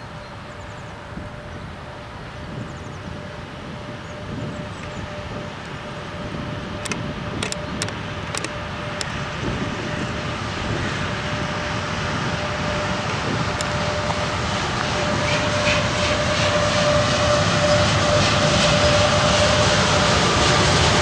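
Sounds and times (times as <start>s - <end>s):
freight train rumble: 0.0s - 21.0s
sharp clicks: 6.8s - 9.1s.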